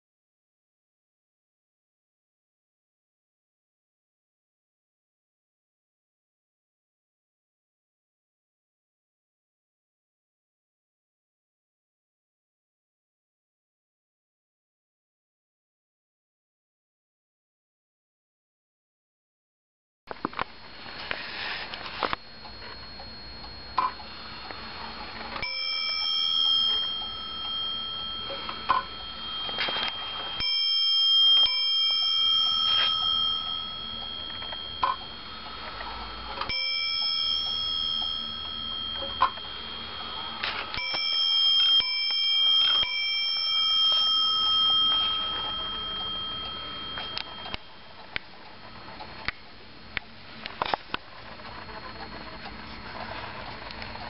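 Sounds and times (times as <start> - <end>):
clock bell striking: 22.0 - 49.3.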